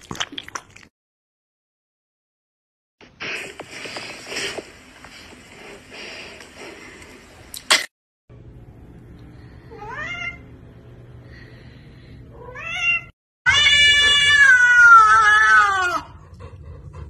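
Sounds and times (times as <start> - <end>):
cats meowing: 12.4 - 16.0
cat yowling: 12.4 - 16.2.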